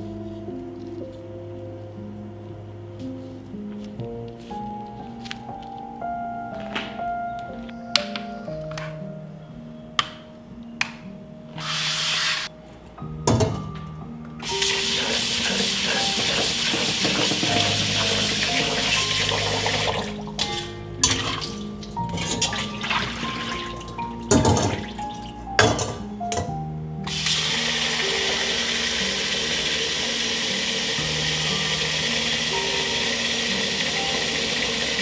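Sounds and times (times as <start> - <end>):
soft background music: 0.0 - 35.0
bowl and strainer clinking: 14.7 - 26.5.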